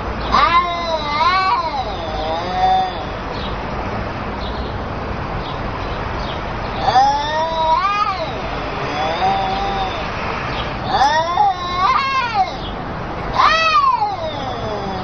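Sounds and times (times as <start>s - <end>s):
cats yowling: 0.2s - 3.4s, 6.7s - 15.0s.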